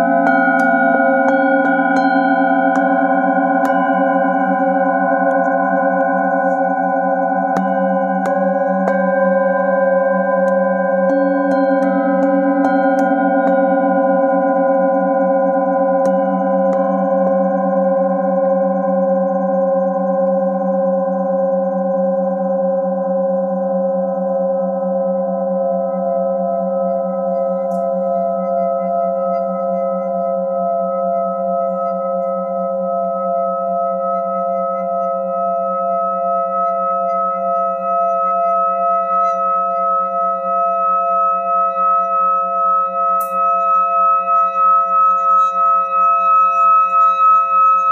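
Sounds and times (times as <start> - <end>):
deeper bowl ringing: 0.0 - 21.3, 39.4 - 46.0
singing bowl sustained tone: 0.0 - 47.9.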